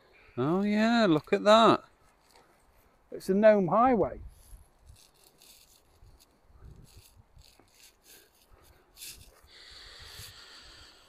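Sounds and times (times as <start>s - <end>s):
rustling on a clip-on microphone: 0.7s - 3.2s, 3.9s - 10.4s
steady hiss: 4.2s - 11.0s.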